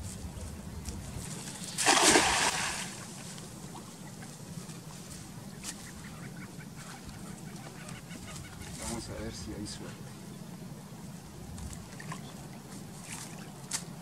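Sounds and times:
loud water splash: 1.7 - 3.1.

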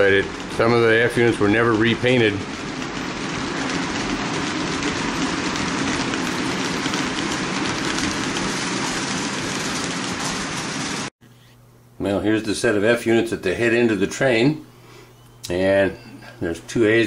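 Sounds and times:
model train rolling on track: 0.0 - 11.1.

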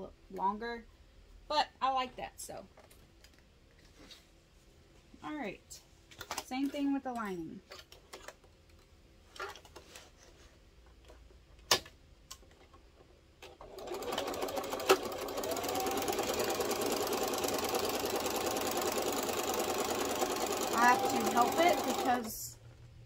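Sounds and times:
sewing machine running: 13.6 - 22.5.

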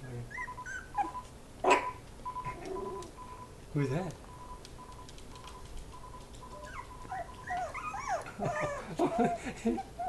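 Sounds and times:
puppies whimpering and whining: 0.0 - 3.1, 6.4 - 10.0.

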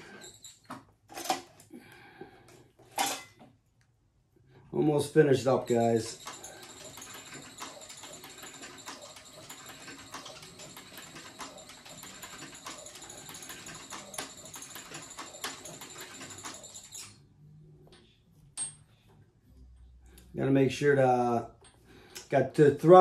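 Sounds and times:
sewing machine needle clacking: 5.6 - 17.1.

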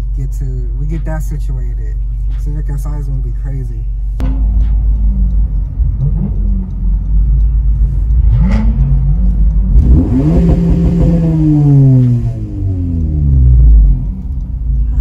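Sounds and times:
car engine revving: 3.9 - 15.0.

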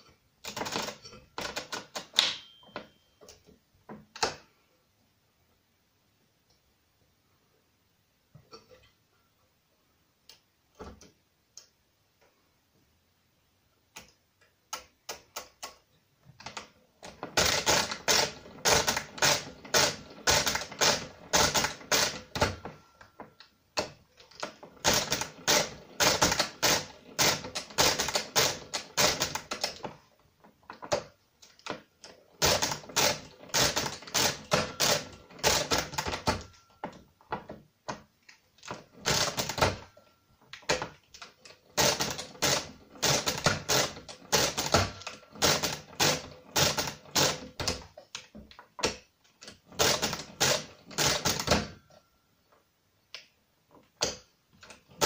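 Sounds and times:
mechanical calculator clicking: 0.4 - 2.2, 16.4 - 23.0, 23.8 - 29.9, 32.4 - 36.7, 38.6 - 40.0, 40.6 - 48.0, 48.8 - 51.9.

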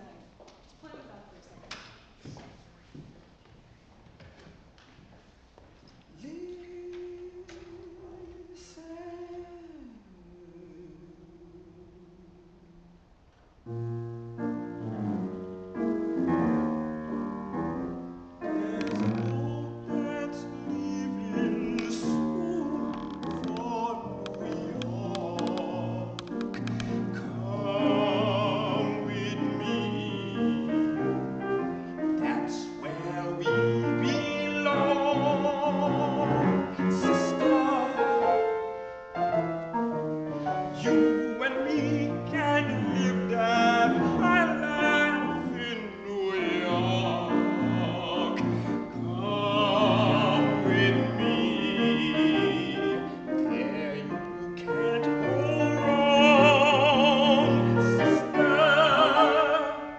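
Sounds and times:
operatic tenor singing: 6.2 - 13.0, 18.3 - 39.3, 40.3 - 59.9
piano accompaniment: 13.7 - 59.9.

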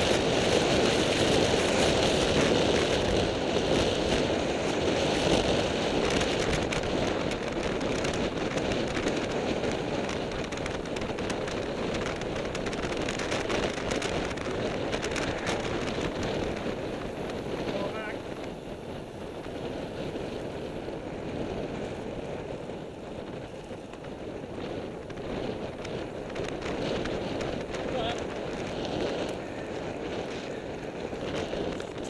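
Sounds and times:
wind rushing over microphone: 0.0 - 32.0.

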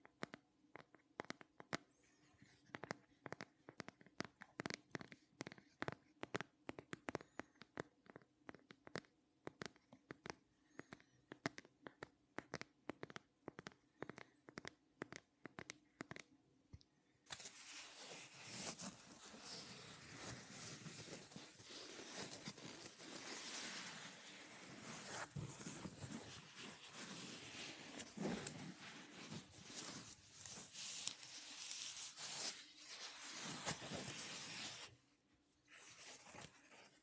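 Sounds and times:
scratching on plastic phone case: 17.3 - 34.9.

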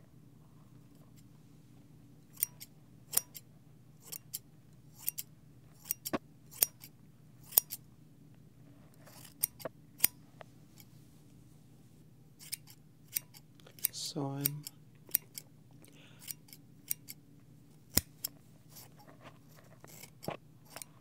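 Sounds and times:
scissors snipping hair: 2.3 - 3.4, 5.0 - 7.8, 9.1 - 10.2, 12.4 - 15.5, 16.2 - 17.2, 17.9 - 20.9.

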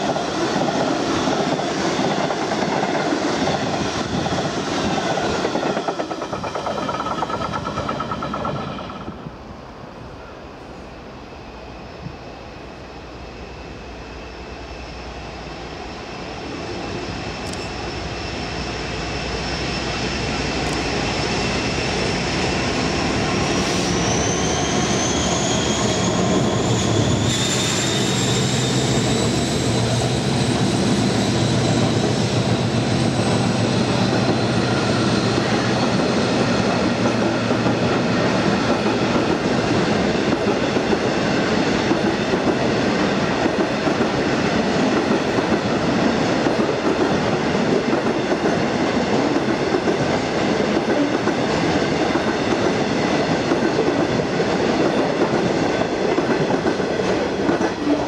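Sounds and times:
diesel locomotive passing: 0.0 - 58.0.

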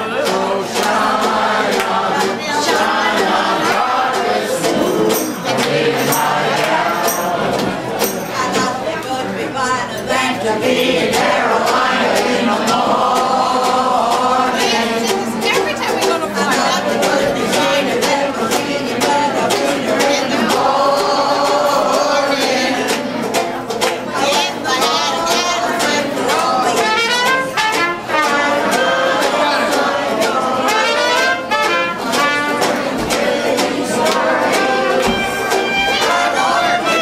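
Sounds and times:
woman singing: 0.0 - 7.3, 8.0 - 23.1, 24.1 - 27.5
jazz band with tuba and banjo: 14.5 - 37.0.

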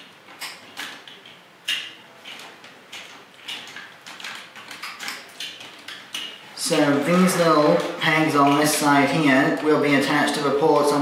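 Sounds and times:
toy pieces clicking: 0.0 - 6.4.

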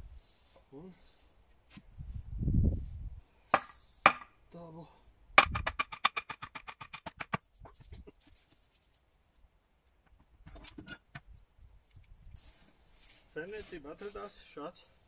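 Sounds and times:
axe knocking wooden stake: 3.5 - 4.3, 5.4 - 7.4.

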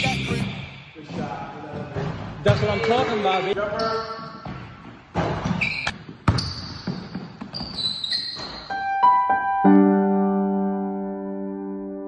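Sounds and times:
short high squeaks: 7.5 - 8.8
piano notes: 8.7 - 12.0.

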